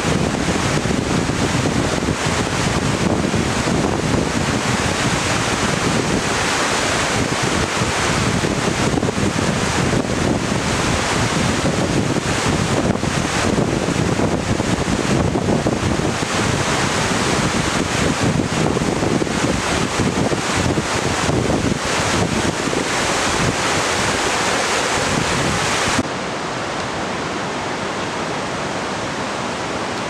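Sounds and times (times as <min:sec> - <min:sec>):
river rushing over boulders: 0:00.0 - 0:30.0.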